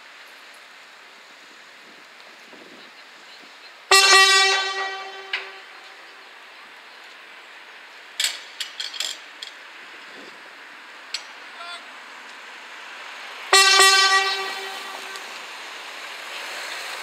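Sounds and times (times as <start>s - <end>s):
train horn blast: 3.9s - 6.4s, 13.5s - 15.5s.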